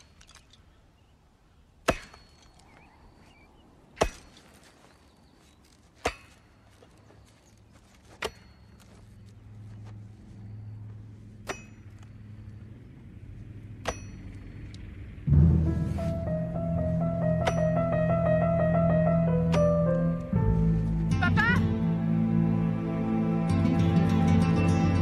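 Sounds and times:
axe chopping wood: 4.0s - 4.5s
vehicle engine hum: 6.7s - 25.0s.

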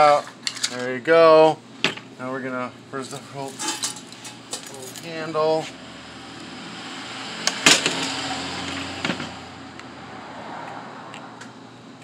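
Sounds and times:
vehicle passing by: 5.6s - 11.6s.

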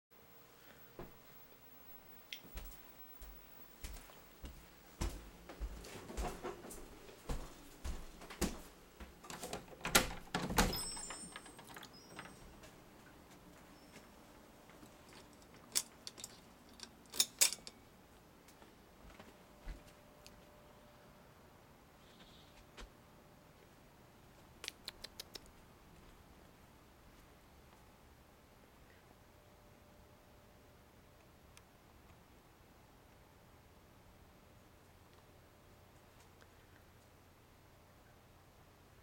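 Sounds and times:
footsteps: 2.3s - 9.7s, 18.4s - 20.5s
door unlocking and opening: 9.3s - 12.7s
sharp clicks: 24.6s - 25.5s.

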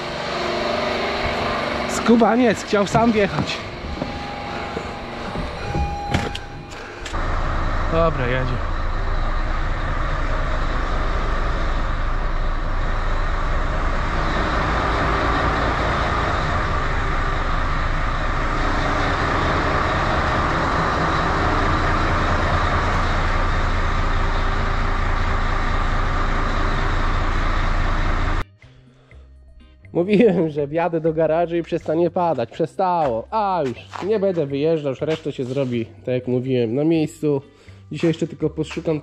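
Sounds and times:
truck diesel engine running: 0.0s - 28.4s.

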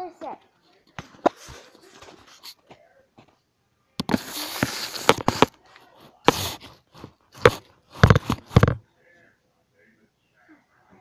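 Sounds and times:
phone microphone handling noise: 4.0s - 5.5s, 7.4s - 8.8s.

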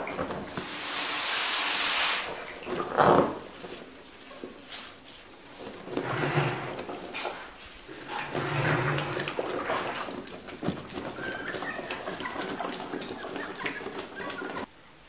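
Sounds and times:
wet squishing of cloth bag: 4.8s - 14.7s
wicker basket creaking: 5.5s - 14.7s.

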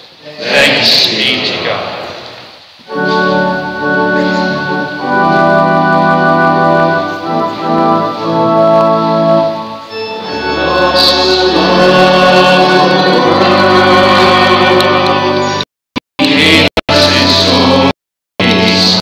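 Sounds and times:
voices singing a hymn: 0.2s - 1.8s, 2.9s - 15.6s, 16.2s - 19.0s
church organ playing chords: 2.9s - 15.6s.

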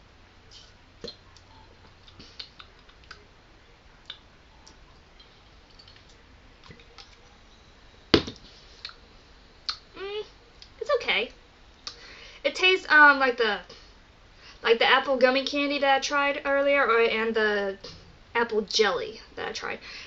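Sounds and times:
bottle set down knock: 8.2s - 8.4s.

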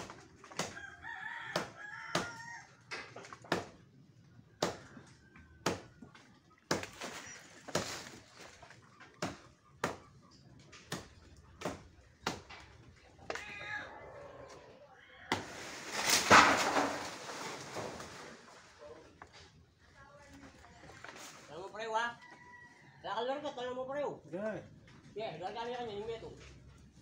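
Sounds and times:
rooster crowing: 0.7s - 2.8s, 22.2s - 23.2s
blade chopping branches: 6.7s - 10.1s, 15.3s - 18.7s.

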